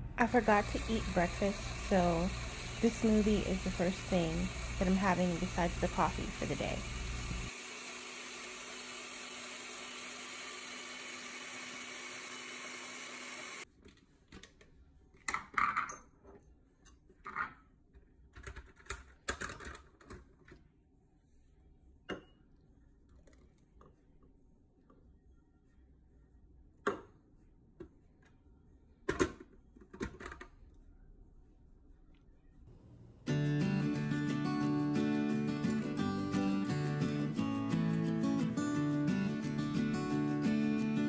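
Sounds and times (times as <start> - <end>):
blender whirring: 0.2 - 13.6
clicks and knocks of kitchen items: 13.8 - 20.6, 29.0 - 30.5.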